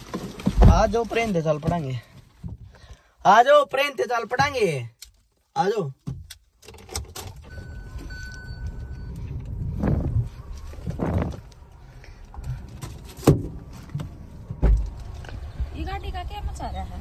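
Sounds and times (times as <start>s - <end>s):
low hum in car cabin: 7.2s - 17.0s
electronic warning chime: 7.5s - 9.3s.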